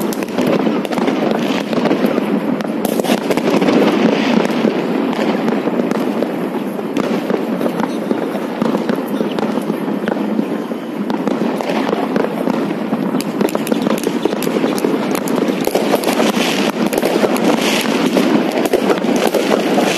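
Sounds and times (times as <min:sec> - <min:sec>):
fireworks crackling and popping: 0:00.0 - 0:19.9.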